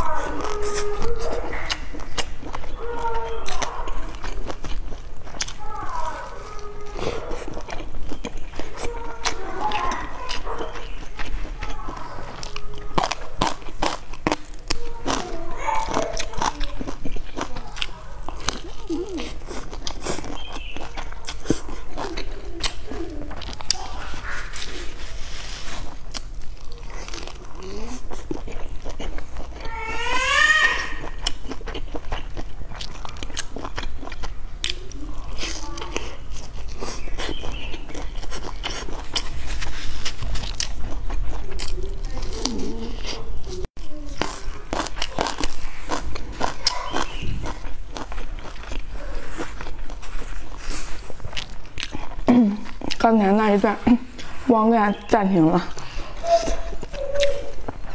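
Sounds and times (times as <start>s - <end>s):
crunchy flatbread chewing: 0.0s - 57.9s
mouth clicks: 54.1s - 57.9s.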